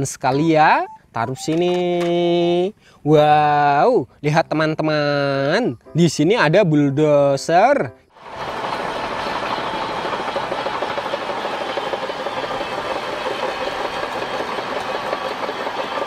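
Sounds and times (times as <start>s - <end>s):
bulldozer diesel engine: 8.2s - 16.0s
steel tracks clattering: 8.2s - 16.0s.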